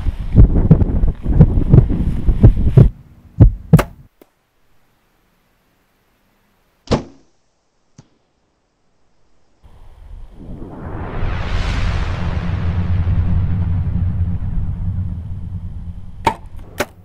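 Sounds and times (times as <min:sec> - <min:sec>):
wind buffeting microphone: 0:00.0 - 0:02.9, 0:10.0 - 0:16.7
arrow thunk: 0:06.8 - 0:07.3, 0:16.2 - 0:17.0.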